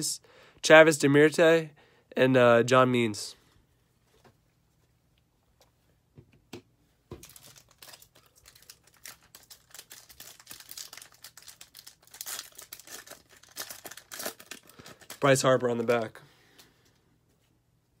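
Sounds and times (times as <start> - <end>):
card pack wrapper tearing and crinkling: 7.2 - 16.1.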